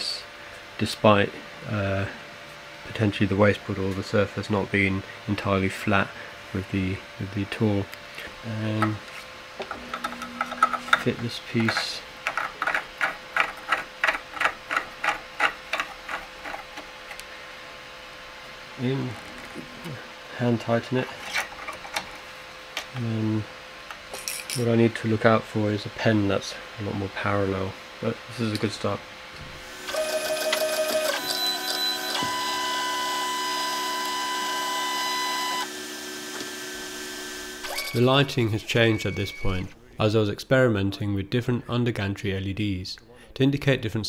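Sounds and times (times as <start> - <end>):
stepper motors whining: 29.6 - 39.8.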